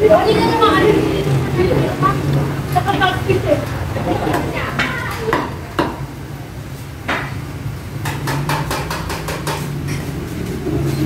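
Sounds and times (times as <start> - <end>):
sharp knocks and clicks: 8.0 - 10.0.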